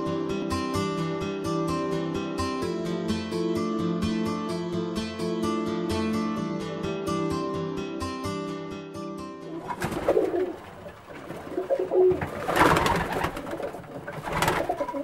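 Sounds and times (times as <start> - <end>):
acoustic guitar music: 0.0 - 15.0
pigeons cooing: 9.5 - 15.0
wing flapping: 9.5 - 15.0.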